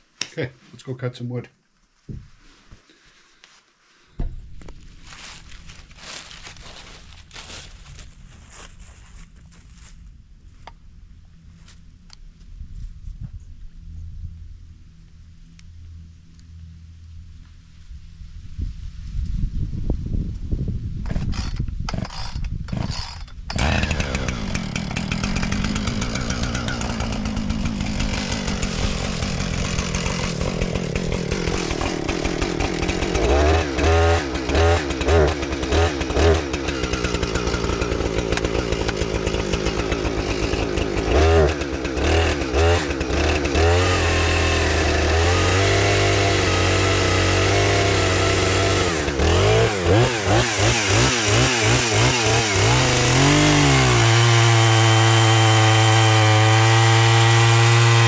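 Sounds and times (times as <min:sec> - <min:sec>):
chainsaw starting and idling: 0:21.0 - 0:58.0.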